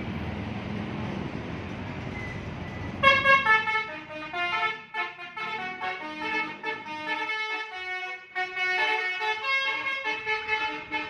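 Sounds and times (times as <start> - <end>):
motorbikes: 0.0 - 4.3
traffic noise: 0.0 - 11.0
bus horn playing melody: 3.0 - 11.0.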